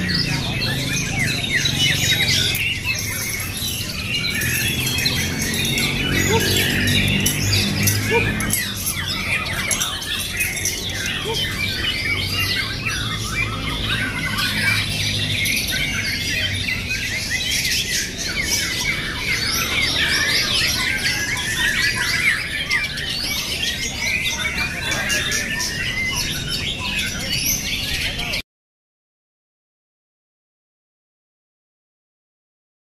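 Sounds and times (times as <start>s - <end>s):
songbirds chirping and trilling: 0.0s - 28.4s.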